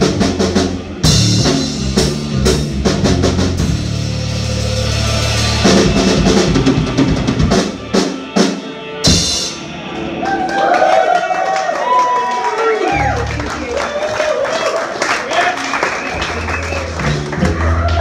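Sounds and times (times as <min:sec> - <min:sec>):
drum kit fills: 0:00.0 - 0:11.1, 0:15.4 - 0:18.0
live rock band playing: 0:00.0 - 0:14.2, 0:15.5 - 0:18.0.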